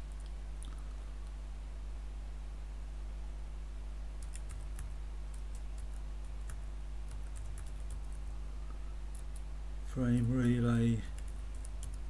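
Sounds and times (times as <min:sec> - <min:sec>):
low electrical hum: 0:00.0 - 0:12.0
computer keyboard typing: 0:04.2 - 0:08.3, 0:10.0 - 0:12.0.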